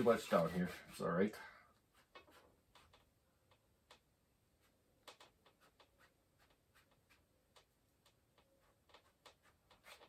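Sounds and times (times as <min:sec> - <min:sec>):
brush scratching on canvas: 0:00.0 - 0:03.1, 0:05.4 - 0:07.3, 0:08.6 - 0:10.0.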